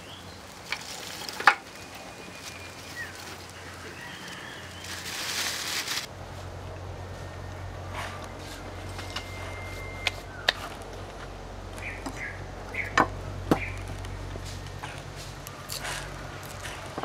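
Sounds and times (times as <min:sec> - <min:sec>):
steady low hum: 0:06.0 - 0:17.0.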